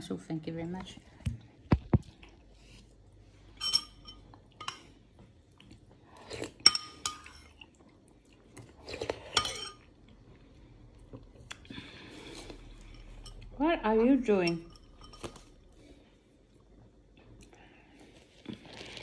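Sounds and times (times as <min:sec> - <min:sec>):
metal spoon clinking on ceramic bowl: 0:03.6 - 0:04.9, 0:06.6 - 0:07.5, 0:09.4 - 0:09.9, 0:14.4 - 0:15.4.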